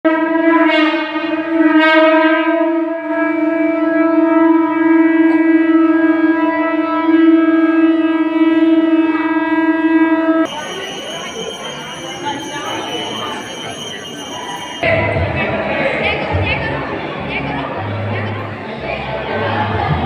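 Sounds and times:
conch shell blown: 0.1 - 10.5.

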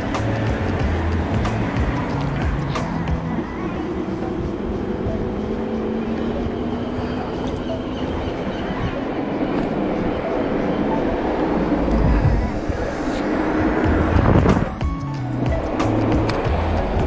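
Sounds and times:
wind rush and road noise: 0.0 - 17.0.

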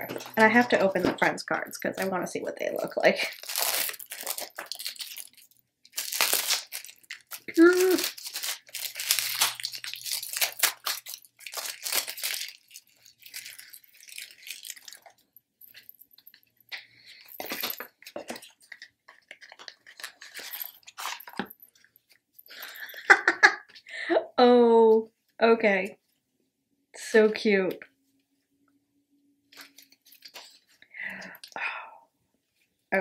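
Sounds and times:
plastic wrapping crinkling: 1.9 - 23.6, 29.5 - 30.8.

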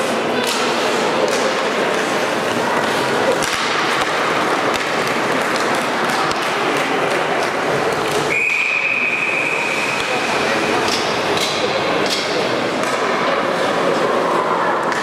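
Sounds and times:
sticks and puck clacking on ice: 0.0 - 8.9, 9.8 - 14.2
hubbub of rink hall: 0.0 - 15.0.

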